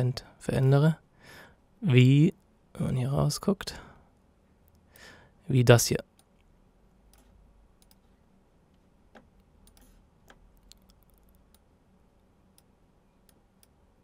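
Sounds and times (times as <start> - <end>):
computer mouse clicks: 7.1 - 8.1, 8.7 - 13.8.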